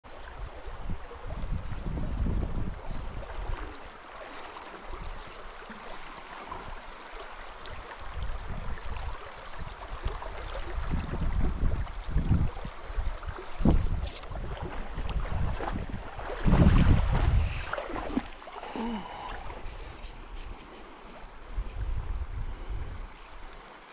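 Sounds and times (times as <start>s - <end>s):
river rippling over gravel: 0.1s - 23.9s
wind buffeting microphone: 0.4s - 3.8s, 8.1s - 18.3s, 21.4s - 23.2s.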